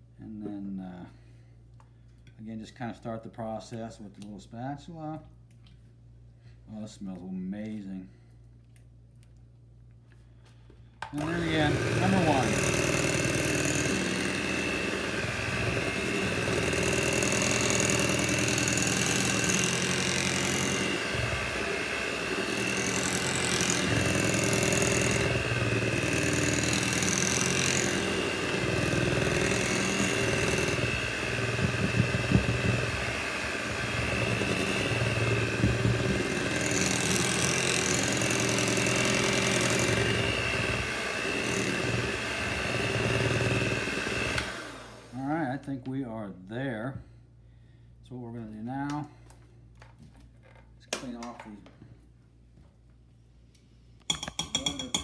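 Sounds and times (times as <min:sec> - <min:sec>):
electric hand mixer whining: 0:11.1 - 0:45.2.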